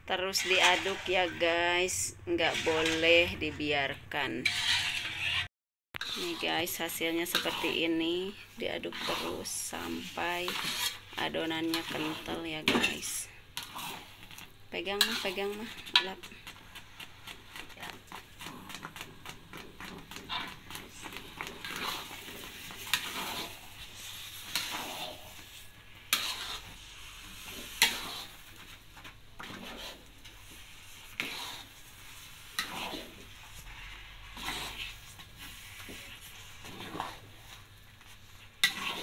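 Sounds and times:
metal spoon scraping wok: 0.1s - 39.0s.

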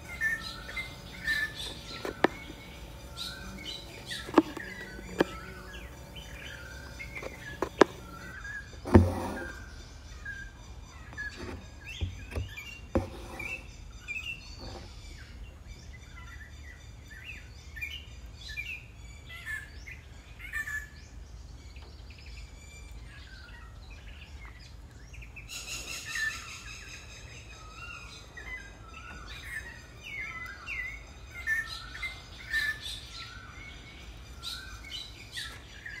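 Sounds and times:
low steady hum: 0.0s - 15.9s
birds chirping and singing: 0.0s - 36.0s.

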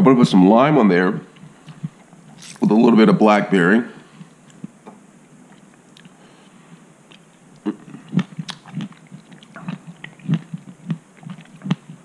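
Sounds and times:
wet chewing mouth clicks: 5.5s - 6.2s, 7.1s - 12.0s.

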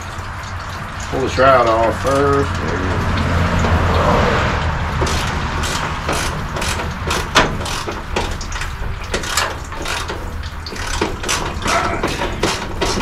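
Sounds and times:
hand tools clinking on metal: 5.0s - 13.0s.

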